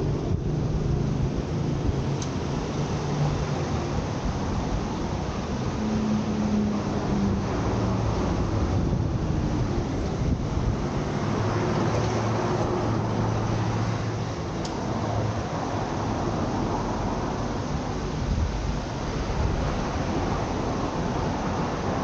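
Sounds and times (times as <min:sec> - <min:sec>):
city traffic rumble: 0:00.0 - 0:22.0
engine hum: 0:00.0 - 0:22.0.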